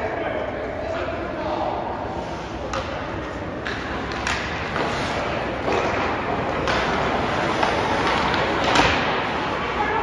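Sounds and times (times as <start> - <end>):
skates scraping ice: 2.0 - 10.0
hockey sticks knocking puck: 2.6 - 10.0.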